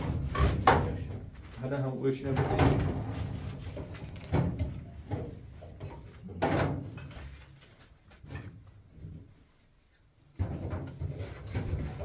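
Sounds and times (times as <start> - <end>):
knocks and thumps: 0.0 - 1.4, 2.3 - 7.4, 10.3 - 12.0.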